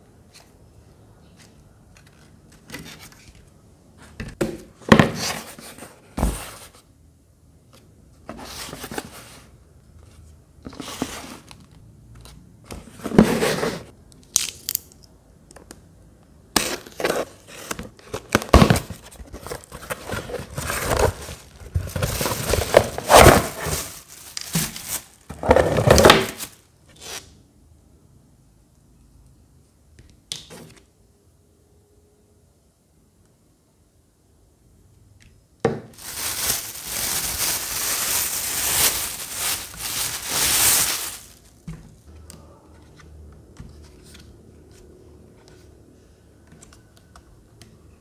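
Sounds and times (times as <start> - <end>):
cardboard flaps tearing and rustling: 18.3 - 26.6.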